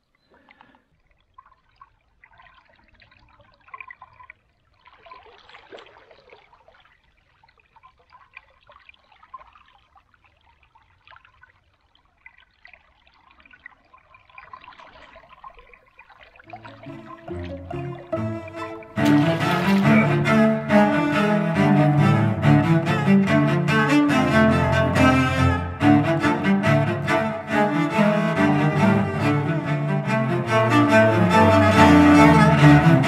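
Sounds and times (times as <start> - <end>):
shallow river water splashing: 0.4 - 21.8.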